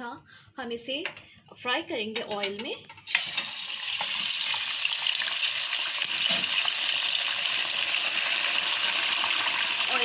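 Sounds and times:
meat sizzling in hot oil: 3.1 - 10.0.

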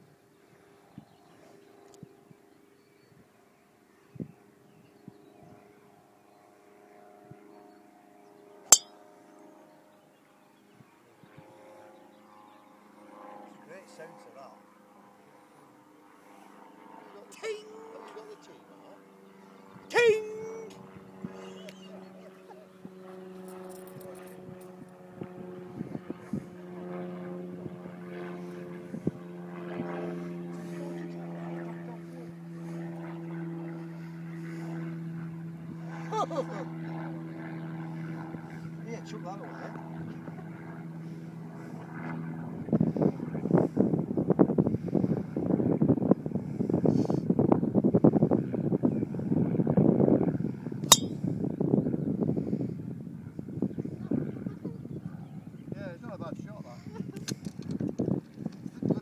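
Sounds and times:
faint drone: 0.0 - 57.6
golf club striking ball: 8.7 - 9.0, 50.8 - 51.2.

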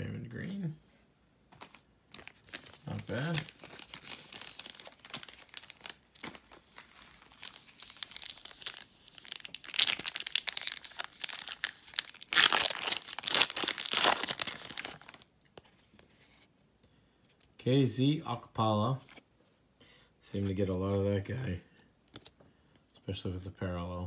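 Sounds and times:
foil wrapper crinkling: 1.6 - 15.3
foil wrapper tearing: 2.2 - 15.3.

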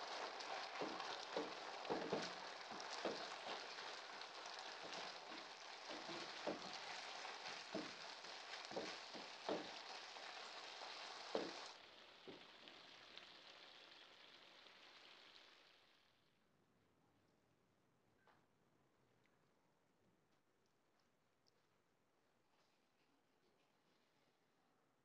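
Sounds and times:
food sizzling in wok: 0.0 - 16.0.

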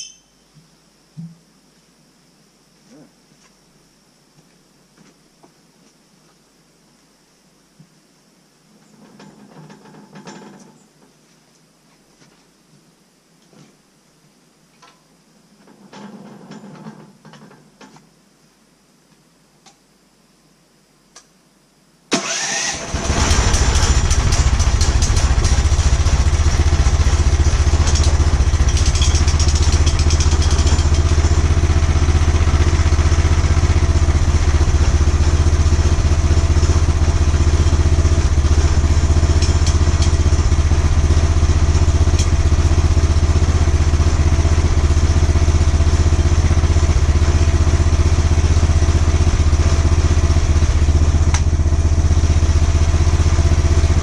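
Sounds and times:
small gasoline engine running: 22.2 - 54.0.

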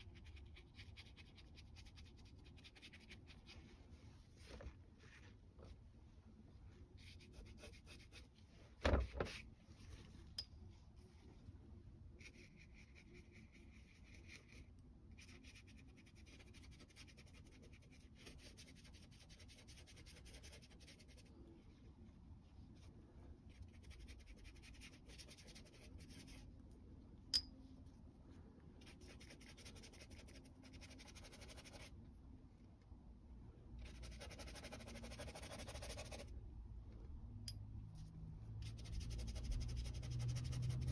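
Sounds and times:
brush scratching on paper: 0.0 - 5.3, 7.0 - 8.4, 12.1 - 21.3, 23.5 - 26.5, 28.8 - 31.9, 33.8 - 36.3, 38.6 - 40.9
thump: 8.8 - 9.3.

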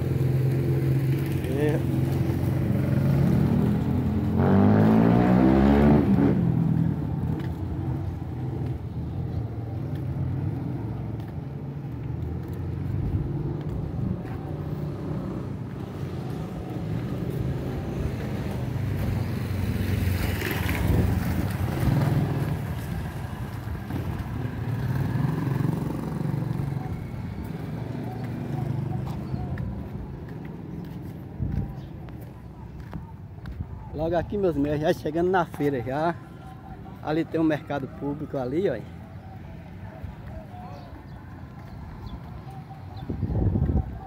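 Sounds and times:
small motorcycle passing: 0.0 - 11.3, 12.0 - 30.4
vehicle passing: 0.0 - 31.2
low rumble of street traffic: 0.0 - 44.0.

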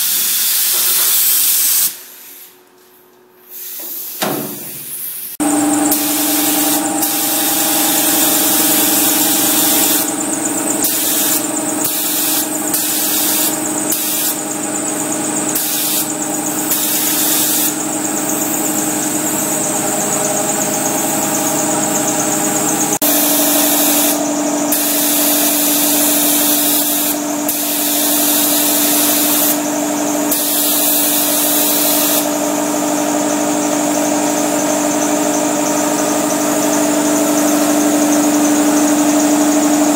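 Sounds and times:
air compressor running: 0.0 - 39.9
paint spray gun hissing: 3.5 - 14.8, 15.5 - 19.6, 22.7 - 32.4.

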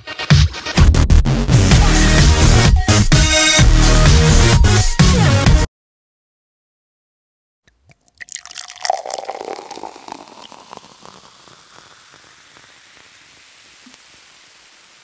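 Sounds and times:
juice pouring into glass bottle: 7.7 - 14.9.

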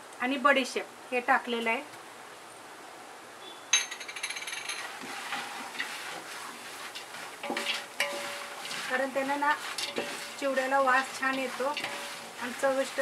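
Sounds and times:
spatula scraping nuts in steel pot: 4.8 - 13.0
steel pot ringing: 7.4 - 13.0.

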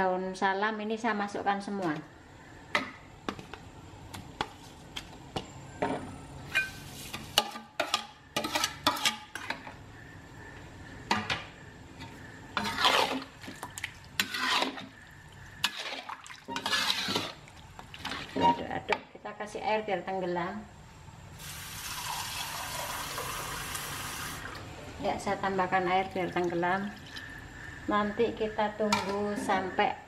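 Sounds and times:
metal ladle scraping a wok: 6.5 - 9.6, 12.5 - 13.4, 14.2 - 15.0, 15.6 - 17.4.

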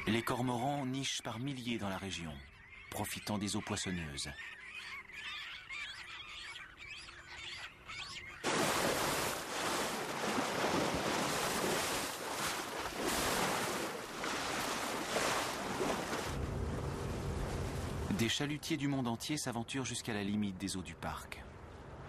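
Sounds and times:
seabirds calling: 0.0 - 21.7
wind: 0.0 - 22.0
sea surf rushing: 8.4 - 18.4.

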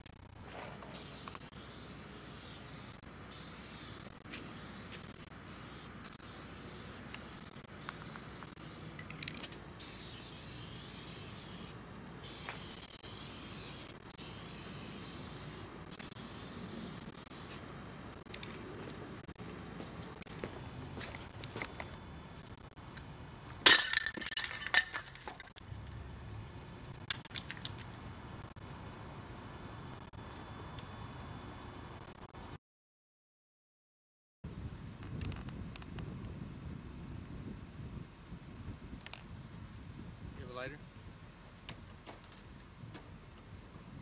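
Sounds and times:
aerosol spray can spraying: 1.0 - 17.6.

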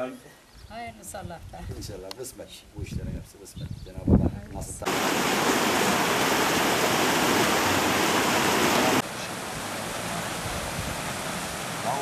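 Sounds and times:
steady rushing noise: 4.9 - 11.8.

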